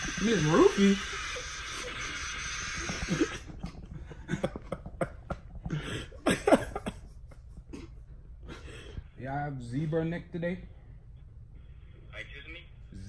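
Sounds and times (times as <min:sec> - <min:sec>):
people laughing: 0:02.8 - 0:08.6.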